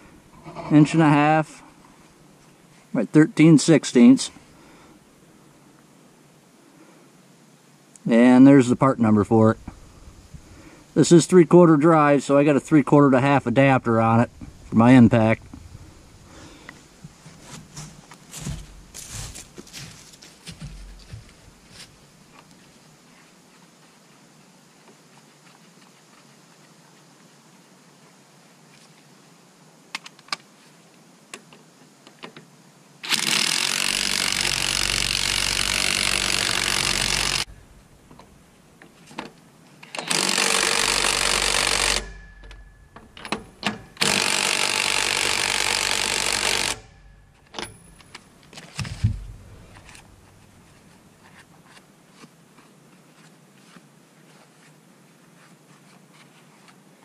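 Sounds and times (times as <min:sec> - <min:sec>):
impact wrench hammering: 0:34.0 - 0:37.5, 0:40.1 - 0:48.2.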